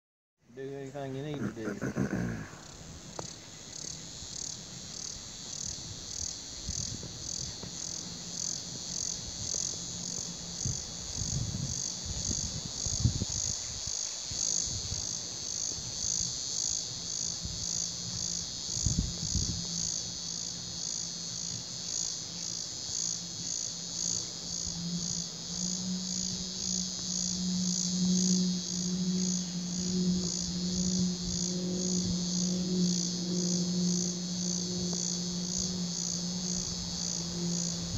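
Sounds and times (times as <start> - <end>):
insect chorus trilling: 0.5 - 37.9
low hum: 14.7 - 37.9.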